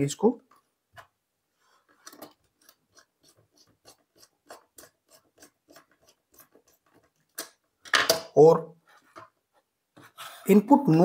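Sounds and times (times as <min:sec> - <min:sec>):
screwdriver ticking and scraping: 0:01.9 - 0:07.5.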